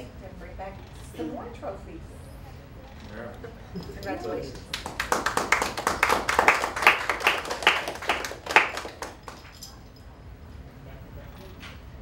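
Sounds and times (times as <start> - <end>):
people clapping: 4.4 - 9.7.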